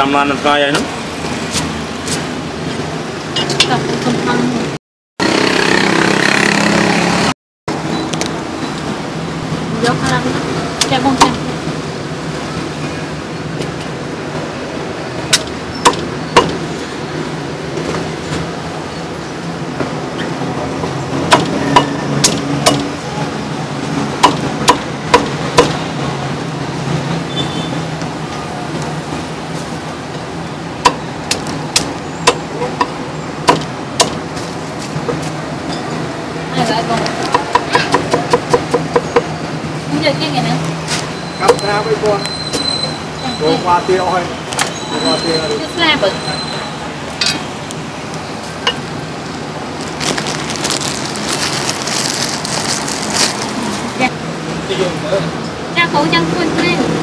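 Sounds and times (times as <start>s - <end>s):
cleaver chopping on wooden block: 15.3s - 16.6s, 21.3s - 22.9s, 24.2s - 25.8s, 30.8s - 34.2s, 37.3s - 39.3s
meat cleaver chopping on wooden block: 21.3s - 22.9s, 24.2s - 25.8s, 33.4s - 34.2s.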